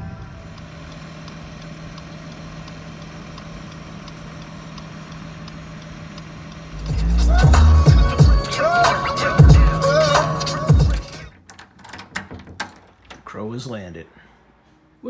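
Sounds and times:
car engine idling: 0.0s - 11.3s
light regular ticking: 0.6s - 8.6s.

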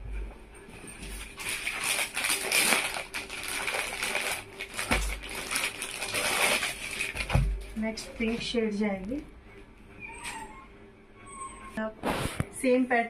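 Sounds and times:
fabric and packaging rustling: 0.6s - 9.3s, 11.8s - 12.7s.

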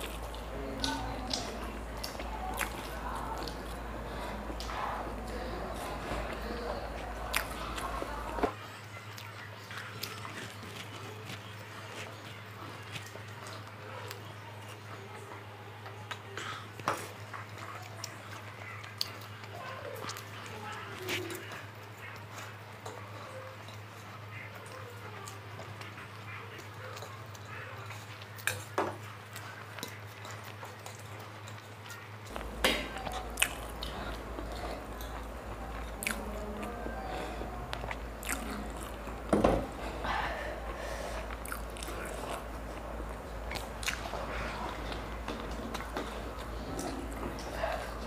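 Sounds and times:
steady low hum: 0.0s - 8.5s, 32.3s - 48.0s
chewing and mouth sounds: 0.0s - 48.0s.

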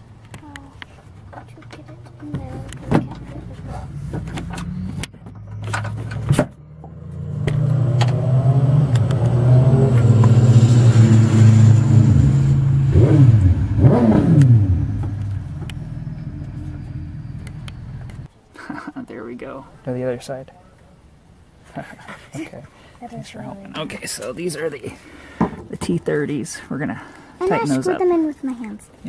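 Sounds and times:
vehicle engine passing by: 1.9s - 18.3s.

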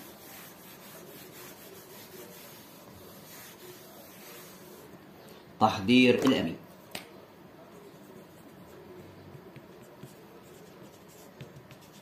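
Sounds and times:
eraser rubbing on whiteboard: 0.0s - 5.0s, 9.5s - 12.0s.

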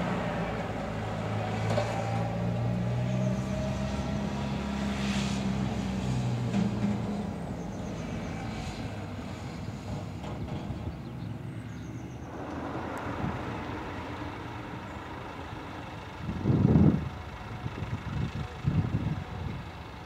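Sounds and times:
utility vehicle engine passing: 0.0s - 16.8s
tractor engine surging: 12.2s - 19.6s.

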